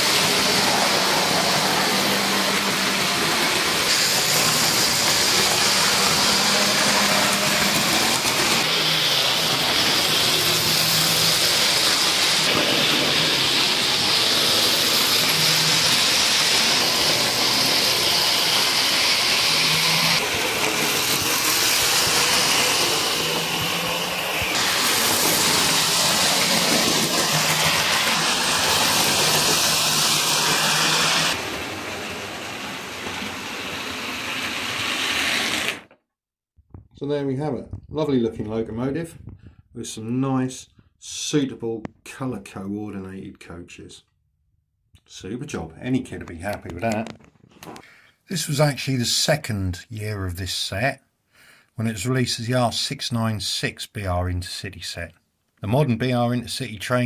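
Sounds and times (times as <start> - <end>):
model trains whirring on rails: 0.0 - 36.0.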